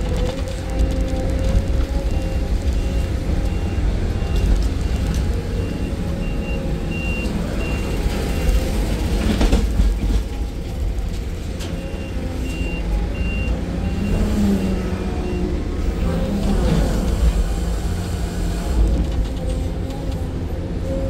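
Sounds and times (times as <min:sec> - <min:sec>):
diesel engine running: 0:00.0 - 0:21.0
reversing alarm beeping: 0:02.0 - 0:09.0, 0:11.8 - 0:15.6.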